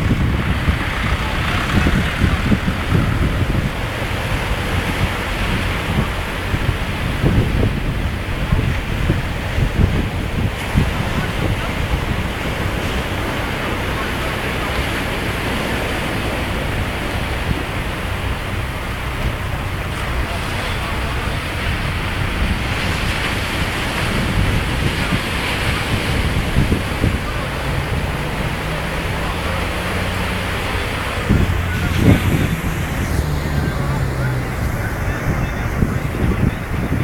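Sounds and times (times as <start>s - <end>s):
surf breaking on beach: 0.0s - 37.0s
tractor engine running: 0.0s - 37.0s
wind buffeting microphone: 0.0s - 37.0s.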